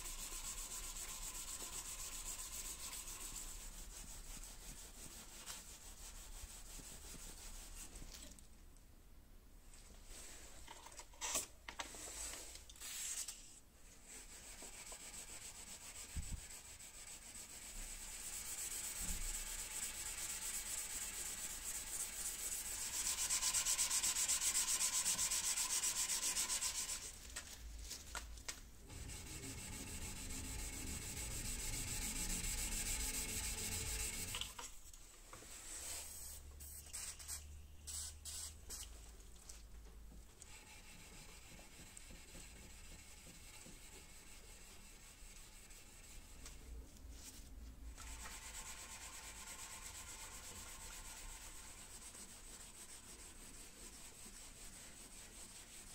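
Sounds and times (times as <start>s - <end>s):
sandpaper rubbing on metal blade: 14.2s - 27.2s, 28.9s - 34.4s.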